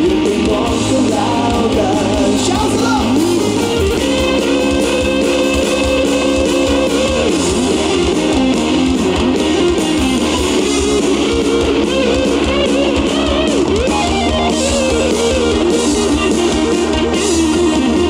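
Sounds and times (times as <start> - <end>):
man singing: 0.0 - 3.6
rock band playing: 0.0 - 18.0.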